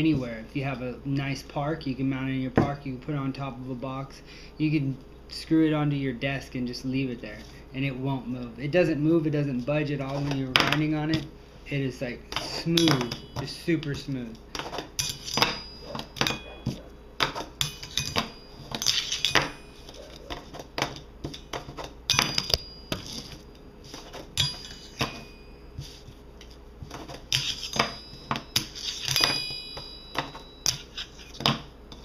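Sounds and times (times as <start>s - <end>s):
metal ringing: 12.6s - 14.0s, 15.0s - 20.3s, 21.3s - 23.6s, 24.3s - 26.0s, 27.3s - 32.0s.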